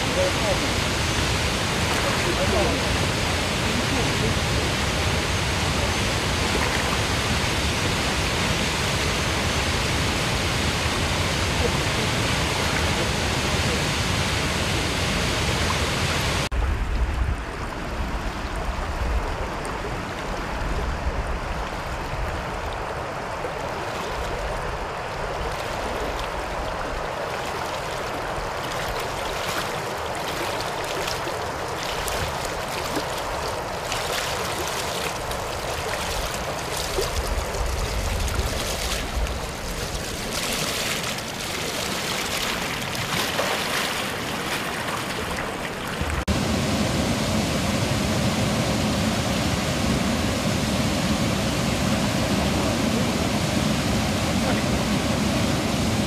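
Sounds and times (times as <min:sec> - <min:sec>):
river flowing: 0:00.0 - 0:56.0
waterfall roaring: 0:00.0 - 0:56.0
splashes from wading: 0:23.4 - 0:46.3.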